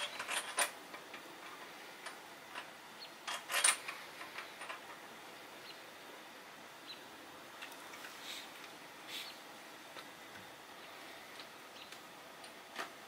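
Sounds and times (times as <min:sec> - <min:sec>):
metal parts clattering: 0:00.0 - 0:05.0.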